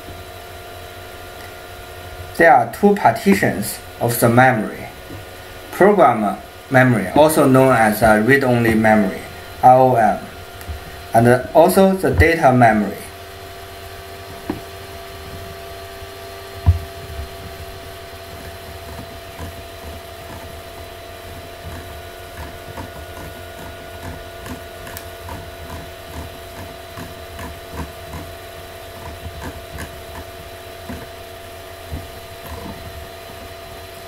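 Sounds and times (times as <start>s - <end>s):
electrical hum: 0.0s - 34.0s
mouse scroll wheel ticking: 18.3s - 20.5s, 21.3s - 28.3s, 28.9s - 31.1s.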